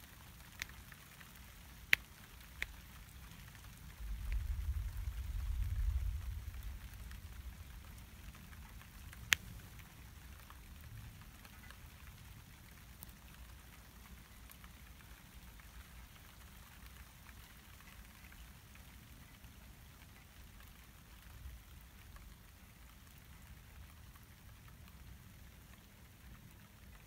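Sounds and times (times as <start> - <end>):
raindrops ticking: 0.0 - 27.0
steady rain: 0.0 - 27.0
low rumble of thunder: 3.9 - 8.6.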